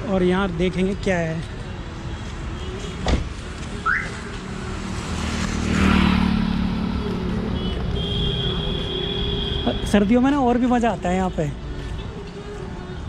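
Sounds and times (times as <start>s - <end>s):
car driving past: 3.9s - 7.7s.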